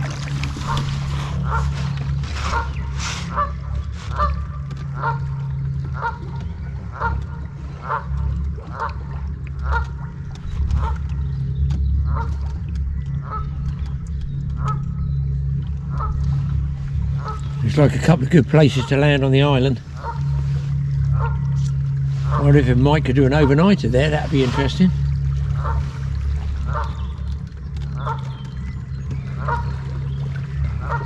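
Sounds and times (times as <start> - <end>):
steady low rumble: 0.0 - 31.0
waterfowl calling: 0.0 - 31.0.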